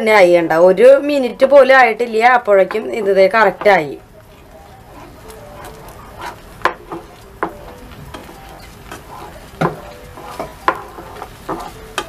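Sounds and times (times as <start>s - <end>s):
spatula scraping dough in a pan: 2.7s - 12.0s
spatula knocking against pan: 9.6s - 12.0s.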